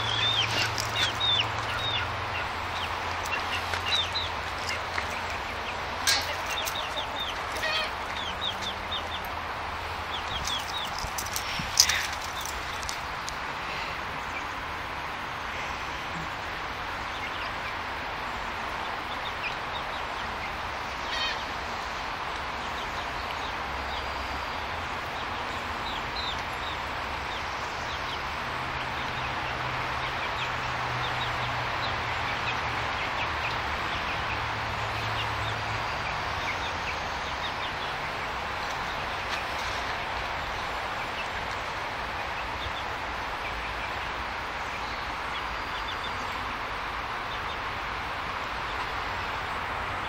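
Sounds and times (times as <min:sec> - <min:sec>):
chicks peeping: 0:00.0 - 0:09.4, 0:10.0 - 0:13.3.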